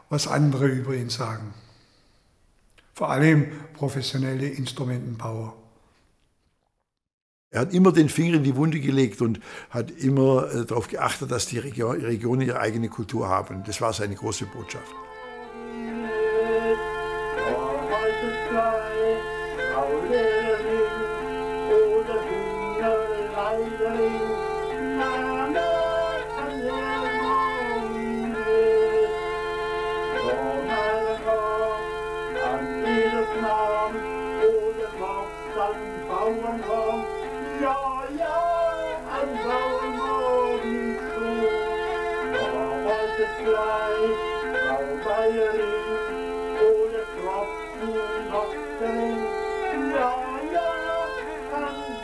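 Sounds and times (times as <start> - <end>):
bagpipe chanter melody: 11.8 - 52.0
bagpipe drone: 11.8 - 52.0.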